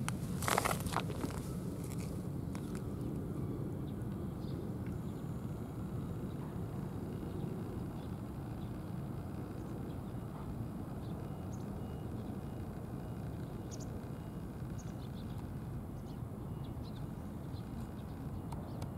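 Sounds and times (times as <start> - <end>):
faint bird chirps: 2.6 - 18.9.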